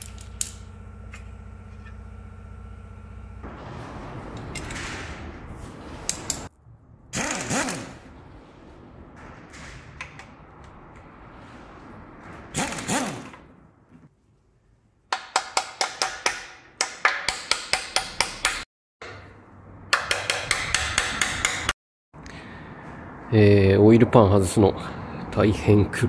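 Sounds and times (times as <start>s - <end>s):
hammer tapping metal: 19.9s - 21.7s.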